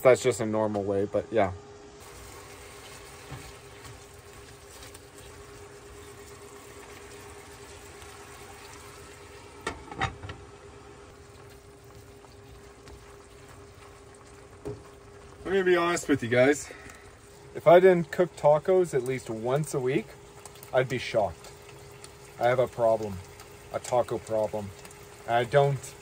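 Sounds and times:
meat sizzling in a skillet: 2.0s - 9.7s, 11.1s - 16.7s.

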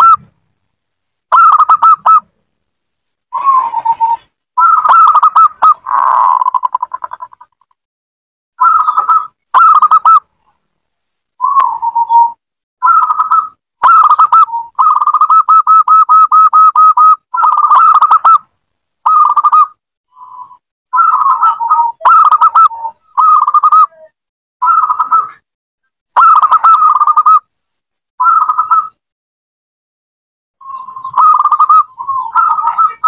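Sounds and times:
dove cooing: 1.3s - 2.2s, 3.3s - 7.4s, 8.6s - 10.2s, 11.4s - 18.4s, 20.4s - 25.4s, 26.2s - 27.4s, 30.6s - 33.0s.

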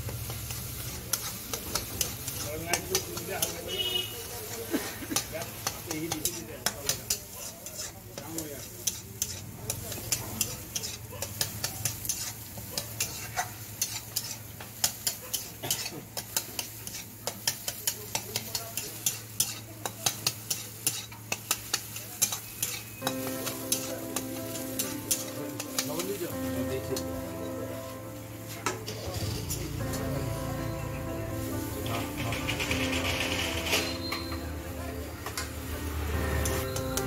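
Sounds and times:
egg sizzling: 0.0s - 28.2s, 35.6s - 37.0s
spatula scraping frying pan: 0.2s - 27.1s
music with steady tones: 23.0s - 37.0s.

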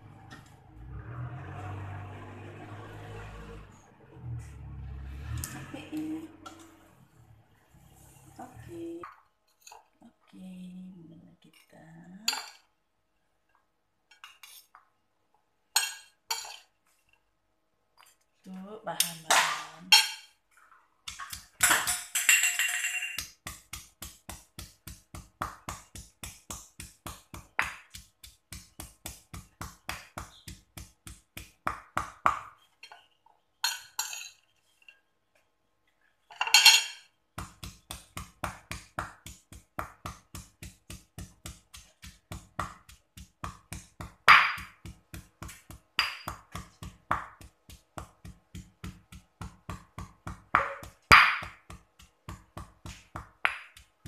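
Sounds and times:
stone pestle pounding in mortar: 23.2s - 32.6s, 37.4s - 54.0s.

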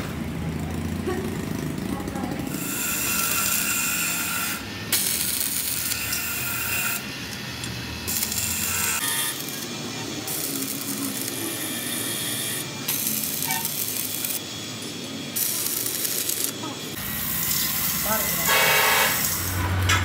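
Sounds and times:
welding arc crackling: 0.4s - 20.0s.

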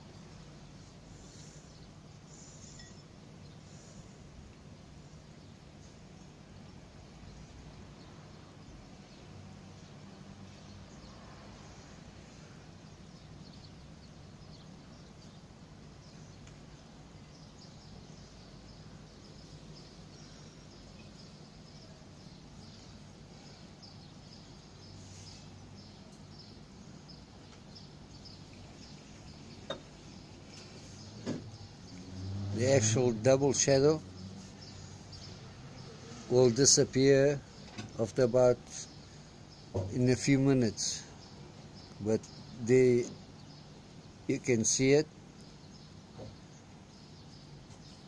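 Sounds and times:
high chirping: 1.3s - 4.0s.

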